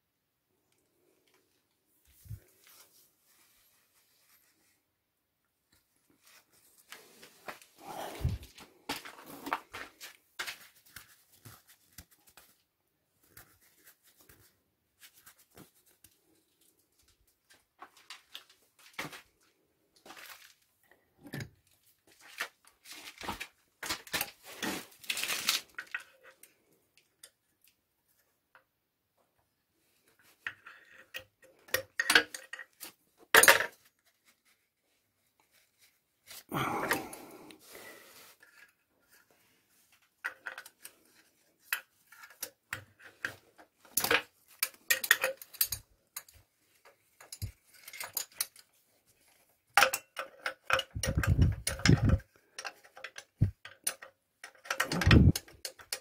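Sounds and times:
clatter of metal parts: 43.8s - 46.4s, 47.2s - 48.7s, 49.8s - 56.0s
metal tools clinking and scraping: 44.0s - 46.4s.

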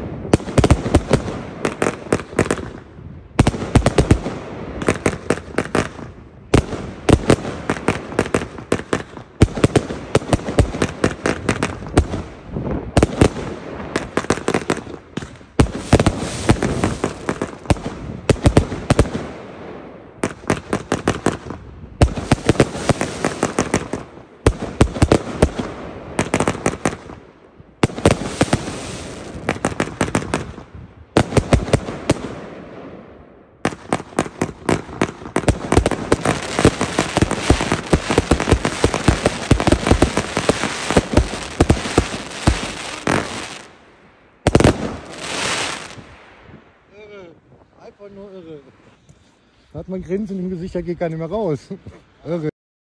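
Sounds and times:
firework hiss: 15.7s - 17.7s, 28.0s - 30.0s, 35.5s - 43.8s, 44.5s - 46.1s.

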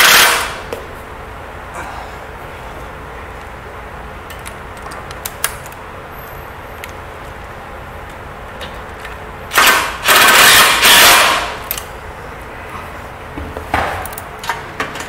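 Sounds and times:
impact driver hammering: 0.0s - 0.6s, 9.5s - 11.6s.

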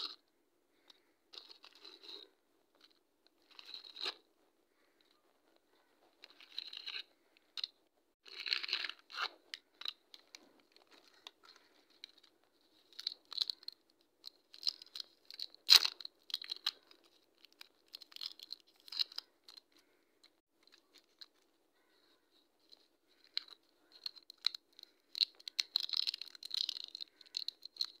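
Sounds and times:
plastic sweet wrapper crinkling: 5.6s - 28.0s.

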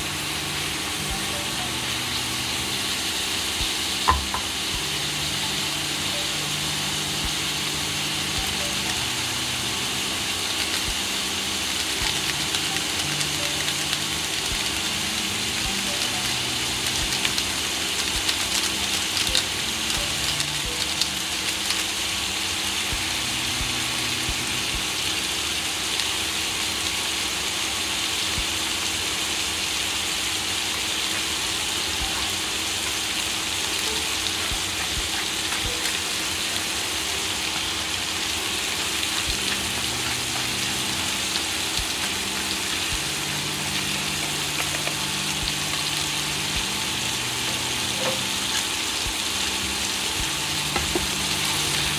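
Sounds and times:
food frying in oil sizzling: 0.0s - 51.9s
oil crackles: 10.0s - 23.4s.

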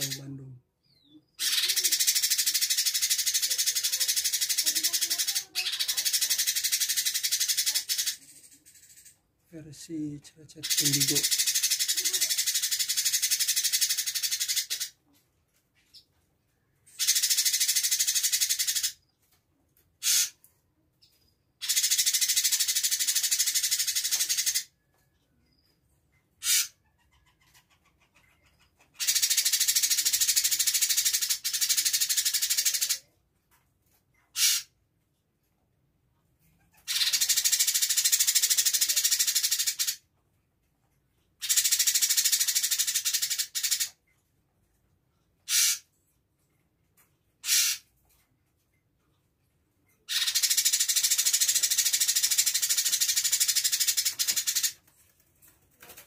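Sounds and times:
bird chattering rattle: 0.0s - 0.5s, 1.4s - 15.2s, 16.9s - 19.2s, 19.9s - 24.8s, 26.4s - 33.1s, 34.2s - 34.8s, 36.5s - 40.1s, 41.3s - 44.1s, 45.4s - 46.0s, 47.2s - 48.2s, 50.0s - 56.0s.

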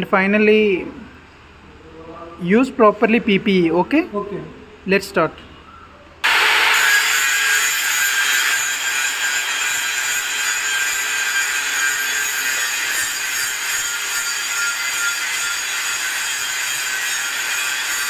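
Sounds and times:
angle grinder grinding metal: 6.2s - 18.0s.

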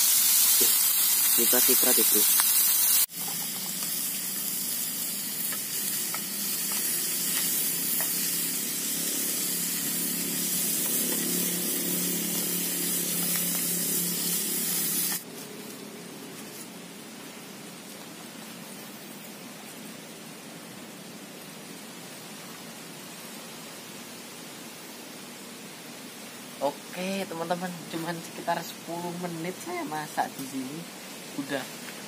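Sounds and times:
gas burner hissing: 0.0s - 15.3s
meat sizzling in a pot: 0.0s - 15.3s.

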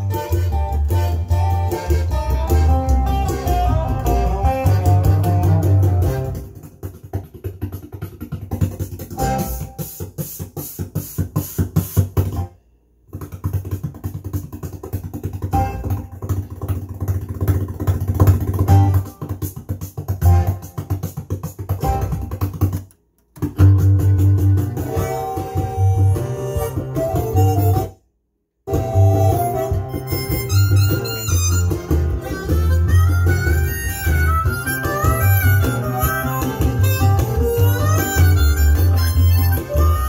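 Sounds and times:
guitar-led music: 0.0s - 10.8s, 18.3s - 22.8s, 23.4s - 28.0s, 28.7s - 40.0s.

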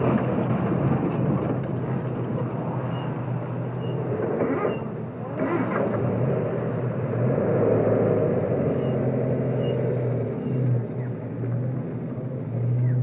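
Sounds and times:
vehicle engines rumbling: 0.0s - 13.0s.

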